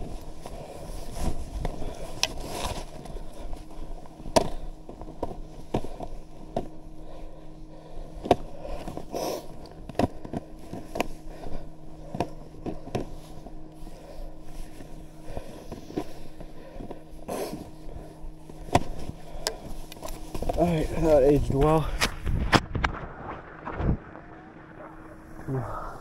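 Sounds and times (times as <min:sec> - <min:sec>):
clicks and knocks of skis and poles: 0:00.0 - 0:03.6, 0:04.2 - 0:06.8, 0:08.2 - 0:17.6, 0:18.5 - 0:23.0
skis sliding through powder snow: 0:00.0 - 0:03.7.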